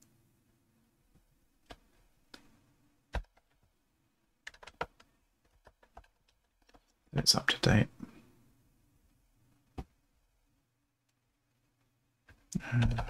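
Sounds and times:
keyboard typing: 4.4s - 7.0s.

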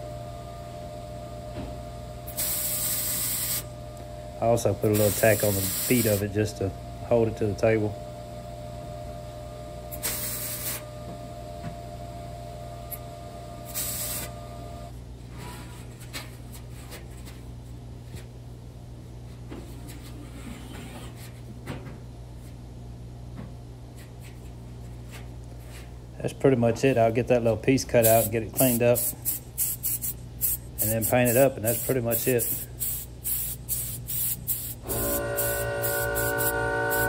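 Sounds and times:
shop machinery humming: 0.0s - 15.9s, 25.6s - 37.0s
short hissing bursts: 2.4s - 3.6s, 5.0s - 6.2s, 10.0s - 10.8s, 13.7s - 14.3s, 28.0s - 37.0s.

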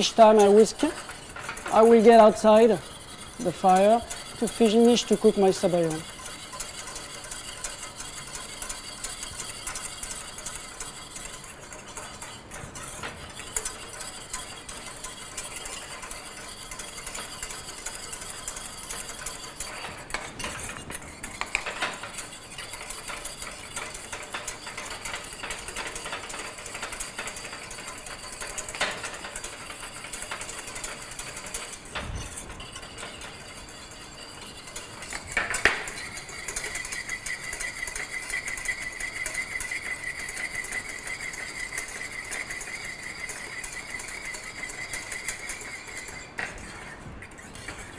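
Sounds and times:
whisk clinking: 0.0s - 47.9s
whisk scraping a steel pan: 0.0s - 47.9s.

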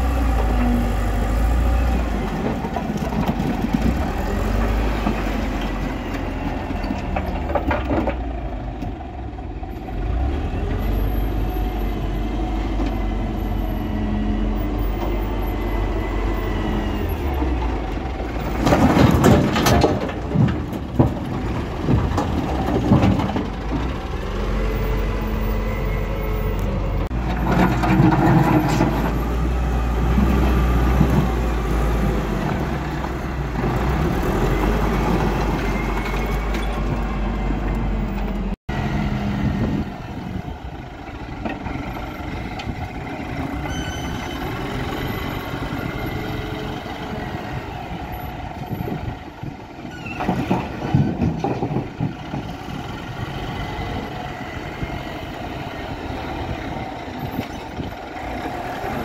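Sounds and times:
diesel engine under load: 0.0s - 59.0s
rocks crashing into truck body: 18.5s - 23.5s.

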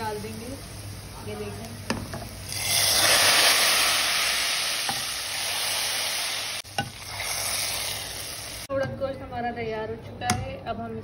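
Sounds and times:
hot oil sizzling loudly: 0.0s - 8.7s.

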